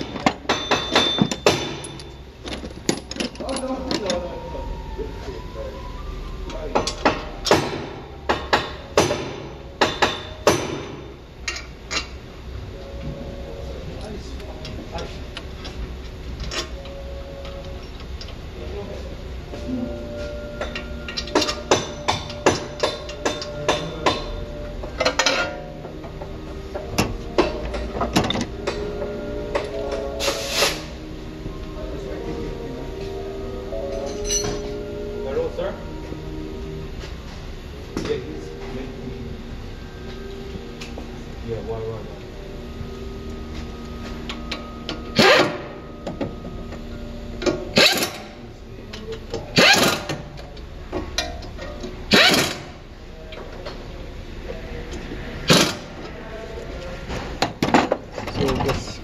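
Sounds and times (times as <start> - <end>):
air impact wrench bursts: 45.2 - 45.6, 49.6 - 50.1, 52.1 - 52.7.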